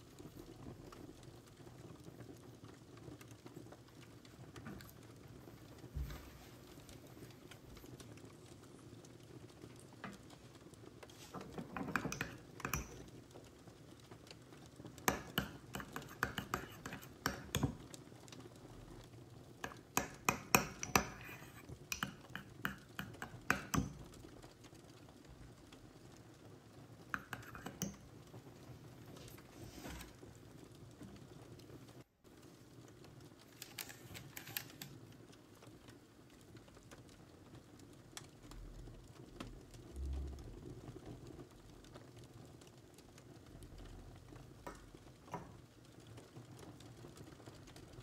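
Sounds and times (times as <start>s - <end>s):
spoon clinking on ceramic pot: 11.7s - 13.0s, 15.1s - 17.8s, 19.6s - 24.0s, 27.2s - 28.0s.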